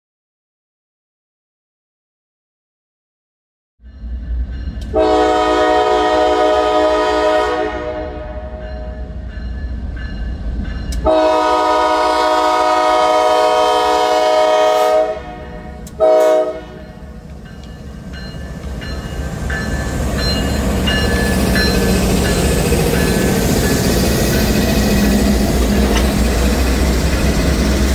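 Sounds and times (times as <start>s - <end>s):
crossing bell dinging: 3.8s - 5.3s, 8.5s - 11.3s, 16.6s - 27.6s
locomotive air horn blasts: 4.9s - 9.1s, 11.0s - 17.0s
locomotive engine rumble: 16.7s - 27.9s.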